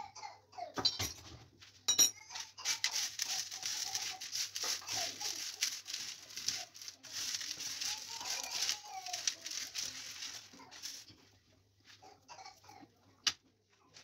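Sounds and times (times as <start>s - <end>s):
salt grains crunching and rustling: 2.4s - 12.0s.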